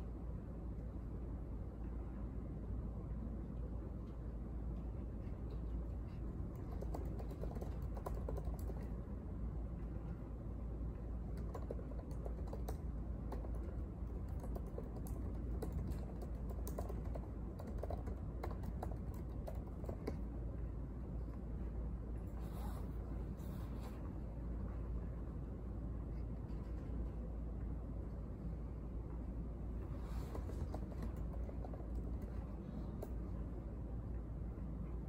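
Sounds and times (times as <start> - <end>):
low background hum: 0.0 - 35.0
laptop keyboard typing: 6.1 - 9.0, 11.2 - 20.3, 29.8 - 33.2.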